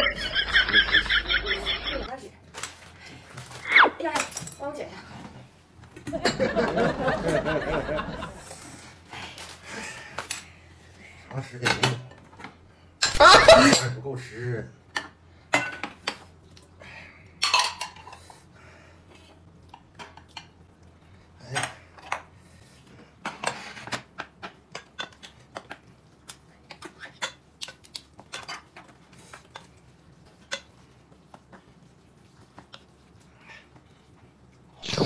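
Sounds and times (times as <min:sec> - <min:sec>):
utensils clinking against dishes: 0:04.1 - 0:04.8, 0:13.0 - 0:14.0, 0:15.0 - 0:16.2, 0:17.4 - 0:18.3.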